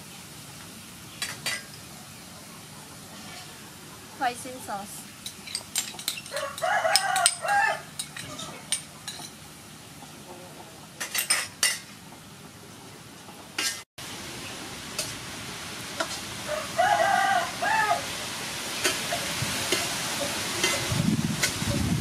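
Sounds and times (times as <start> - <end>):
rooster crowing: 6.3 - 8.7, 16.4 - 18.2
meat sizzling in a wok: 14.0 - 22.0
metal spoon scraping a pan: 20.6 - 21.6.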